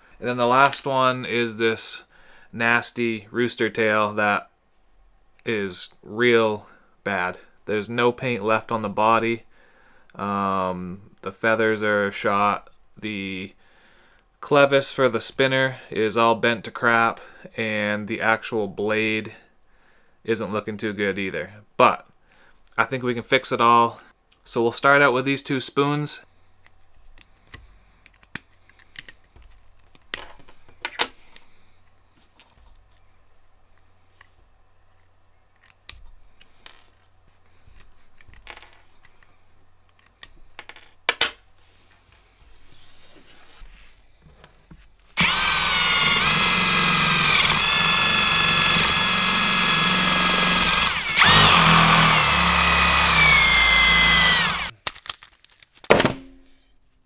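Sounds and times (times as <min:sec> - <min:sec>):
drill spinning wire brush on metal: 0:45.2 - 0:54.7.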